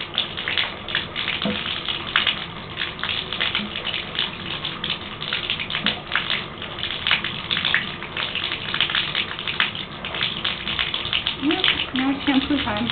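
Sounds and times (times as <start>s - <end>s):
water running into bathtub: 0.0s - 12.9s.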